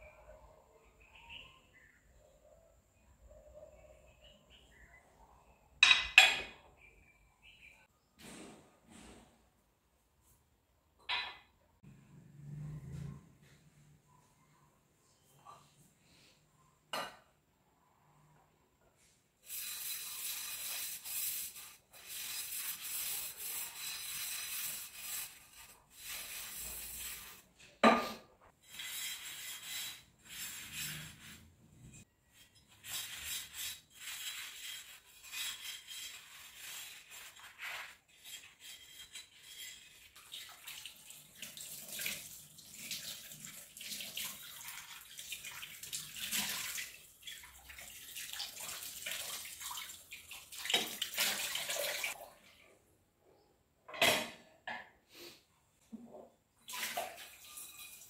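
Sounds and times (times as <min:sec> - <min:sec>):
sponge scrubbing pans: 0:19.4 - 0:52.2
tap water running into sink: 0:40.2 - 0:52.1.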